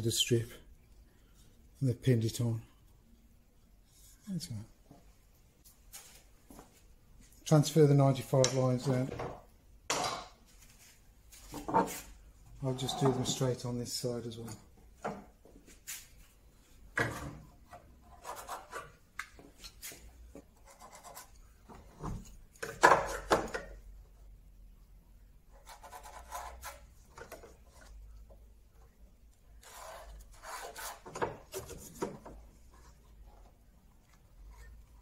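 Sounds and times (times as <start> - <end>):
pen scratching: 29.6 - 31.1.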